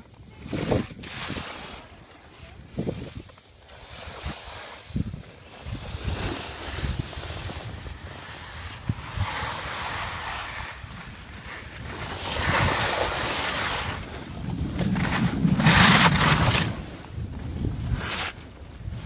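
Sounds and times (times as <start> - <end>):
skis hissing over snow: 0.3 - 19.0
wind buffeting microphone: 4.2 - 19.0.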